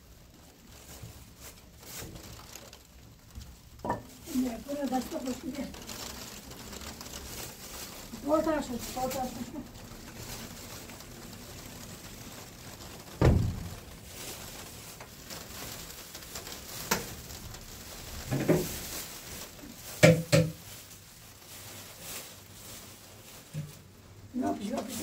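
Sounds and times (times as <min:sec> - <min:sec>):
steady soft hiss: 0:00.0 - 0:25.0
low thump: 0:13.2 - 0:13.8.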